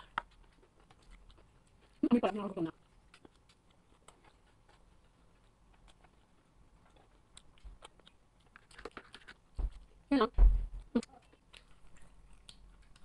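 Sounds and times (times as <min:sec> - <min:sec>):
person chewing food: 0:00.0 - 0:10.1, 0:10.7 - 0:13.0
soft low bumps: 0:09.5 - 0:11.0.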